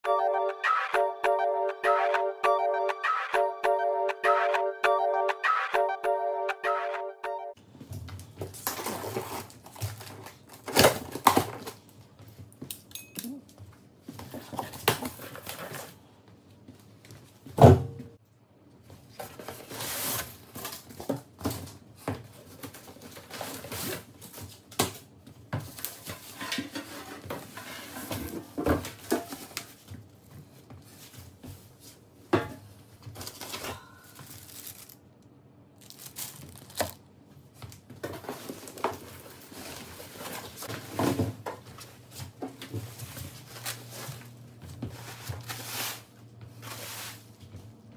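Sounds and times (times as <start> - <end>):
bubble wrap crinkling: 34.1 - 37.2
packing tape tearing: 35.8 - 37.0.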